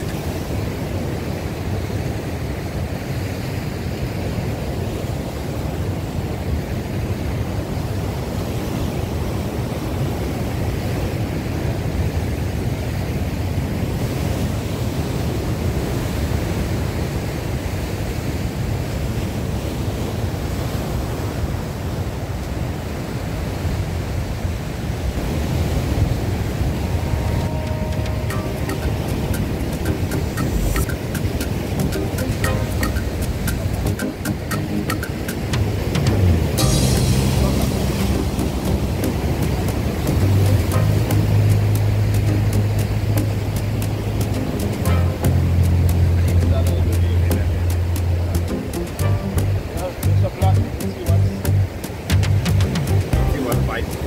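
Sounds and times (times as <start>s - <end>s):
surf breaking on rocks: 23.7s - 54.0s.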